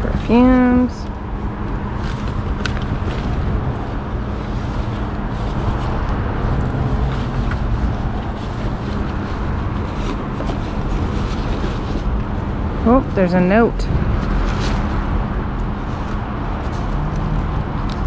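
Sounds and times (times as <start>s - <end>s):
steady low rumble: 0.0s - 18.0s
fabric bag rustling: 6.7s - 12.3s.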